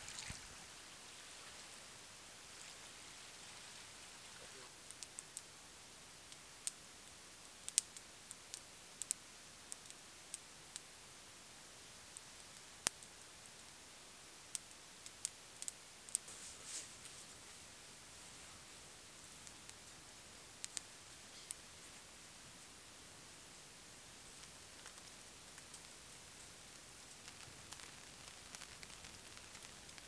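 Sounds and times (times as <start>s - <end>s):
campfire crackling: 0.0s - 30.0s
fire popping and snapping: 4.5s - 11.0s, 11.9s - 13.8s, 14.4s - 22.9s, 23.5s - 30.0s.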